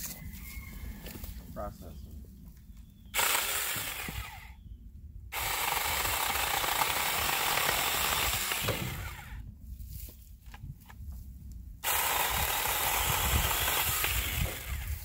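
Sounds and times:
mini chainsaw cutting branches: 3.1 - 4.6, 5.3 - 9.4, 11.8 - 15.0.

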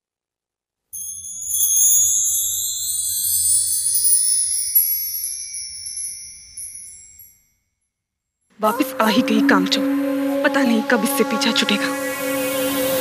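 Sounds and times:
tinkling chime music: 1.0 - 8.8.

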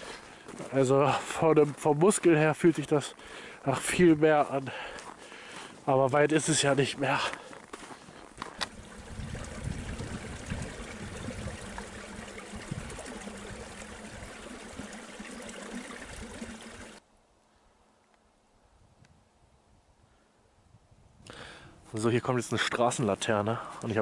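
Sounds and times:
mountain stream trickling: 0.0 - 17.0.

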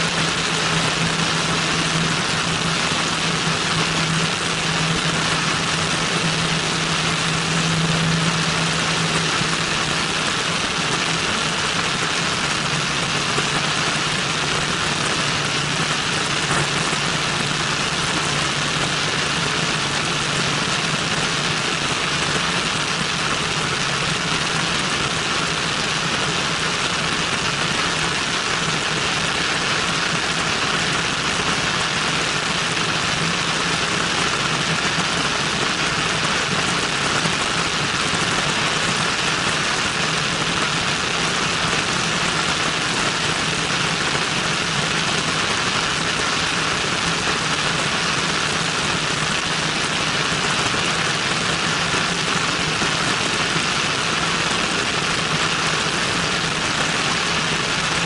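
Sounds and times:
airflow rushing: 0.0 - 20.6
aircraft engine and propeller: 0.0 - 58.0.

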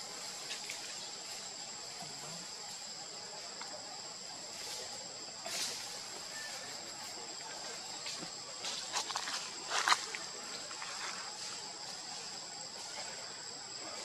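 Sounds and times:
insects droning: 0.0 - 14.0
rustling noise: 8.0 - 13.2.

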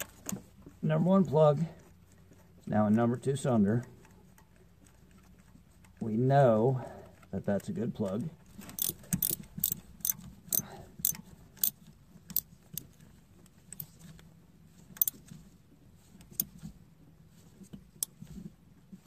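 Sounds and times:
ratchet wrench clicking: 8.7 - 12.9, 15.0 - 15.2.

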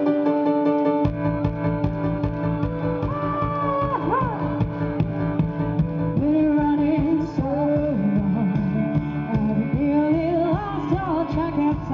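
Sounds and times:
dance music with singing: 3.0 - 5.2, 5.8 - 11.9.

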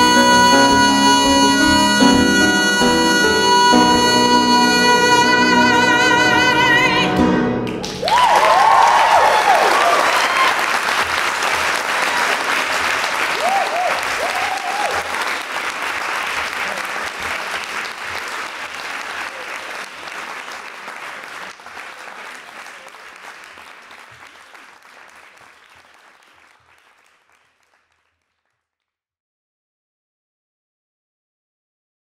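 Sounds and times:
audience applauding: 7.7 - 28.6.

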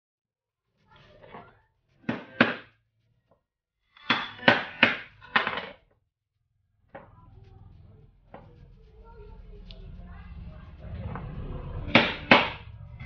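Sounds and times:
hammer striking knife blade: 11.9 - 12.6.

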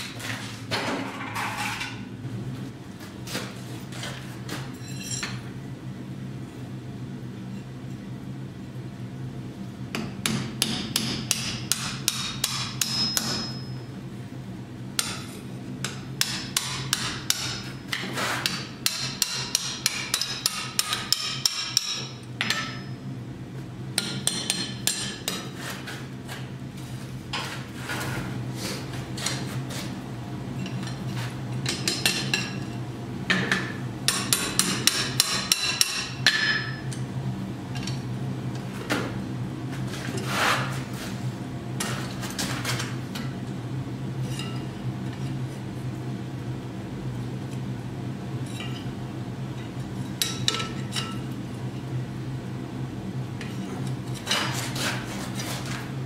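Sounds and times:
steady low hum: 0.0 - 56.0
hammer striking iron on anvil: 10.0 - 13.8, 15.0 - 23.0, 24.0 - 25.5, 33.3 - 37.0, 50.2 - 51.2.

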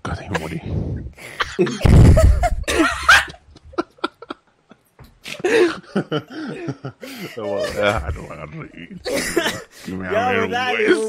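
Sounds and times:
men laughing: 1.2 - 9.7.

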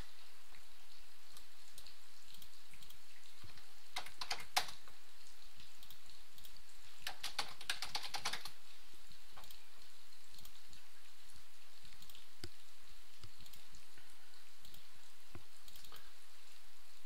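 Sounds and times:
computer keyboard typing: 1.8 - 4.9, 5.8 - 8.6.

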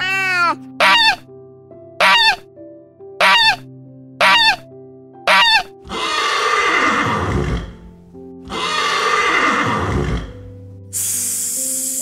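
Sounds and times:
background music with held notes: 0.0 - 12.0
goose honking: 0.8 - 1.2, 2.0 - 2.4, 3.2 - 3.6, 4.2 - 4.6, 5.3 - 5.7
horse whinnying: 5.3 - 7.8, 8.5 - 10.4.

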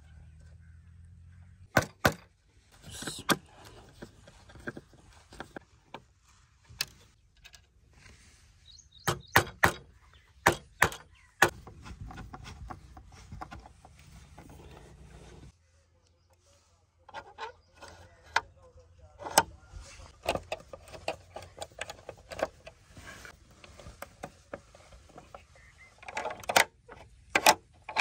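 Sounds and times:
metallic clicks and knocks: 9.0 - 13.7, 26.0 - 28.0
light scraping: 11.5 - 15.6, 16.5 - 26.0.

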